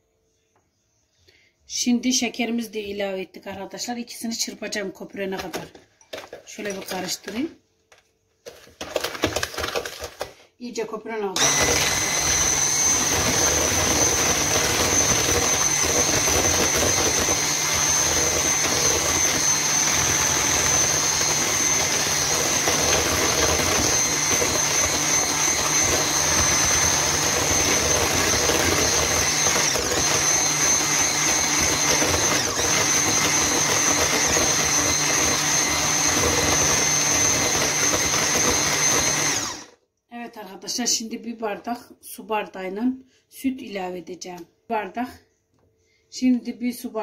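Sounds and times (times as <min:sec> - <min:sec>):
electric hand mixer running: 0:08.8 - 0:10.3, 0:11.4 - 0:39.8.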